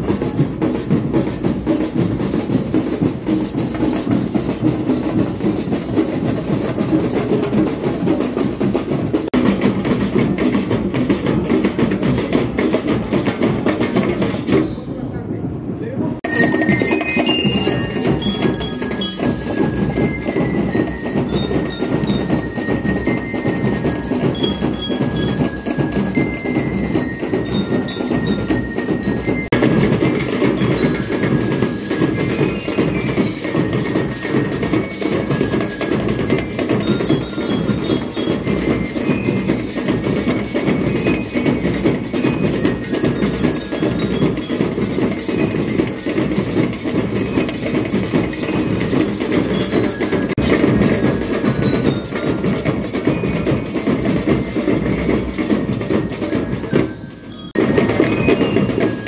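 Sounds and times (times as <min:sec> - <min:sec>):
fast drumming: 0:00.0 - 0:15.0, 0:16.1 - 0:59.0
bell lyre notes: 0:16.2 - 0:59.0
metal shakers shaking: 0:16.2 - 0:59.0.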